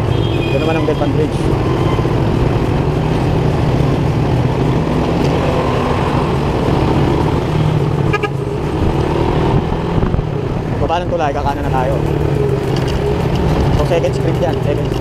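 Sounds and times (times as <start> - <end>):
vehicle horn toot: 0.0 - 2.1, 8.1 - 8.4
motorcycle engine running: 0.0 - 15.0
road and traffic noise: 0.0 - 15.0.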